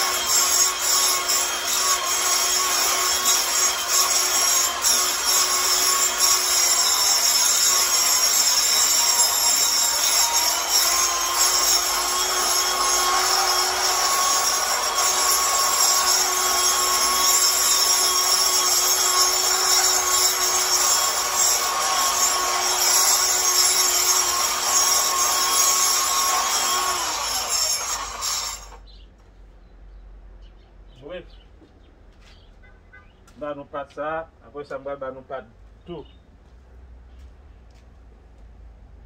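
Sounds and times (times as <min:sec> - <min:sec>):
angle grinder grinding concrete: 0:00.0 - 0:28.8.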